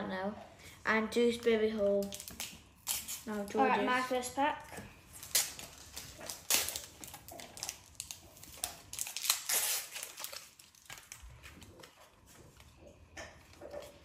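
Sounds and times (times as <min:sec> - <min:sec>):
wrappers crinkling and tearing: 0:01.9 - 0:03.6, 0:05.1 - 0:12.3.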